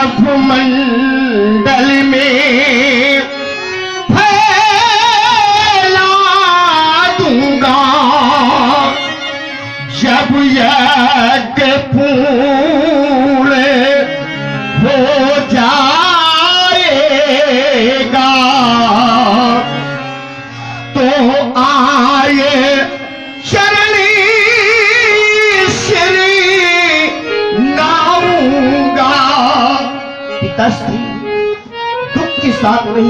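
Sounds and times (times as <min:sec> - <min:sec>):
person singing over loudspeakers: 0:00.0 - 0:33.0.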